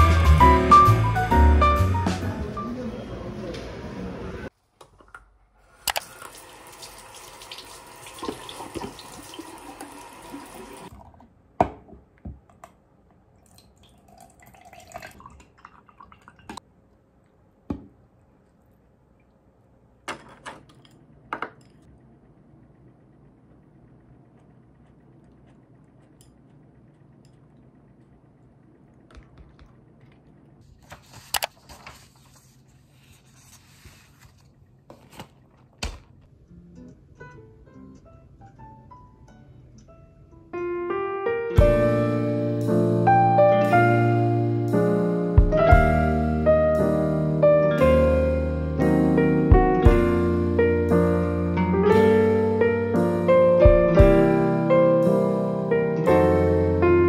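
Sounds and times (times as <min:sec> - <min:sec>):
tap running into sink: 0:07.4 - 0:10.5
kitchen knocks and clicks: 0:20.0 - 0:21.9.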